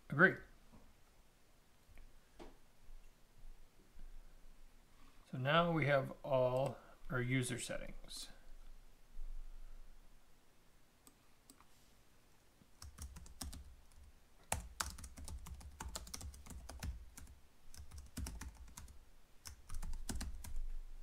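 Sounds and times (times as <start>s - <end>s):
computer keyboard typing: 12.8s - 20.6s.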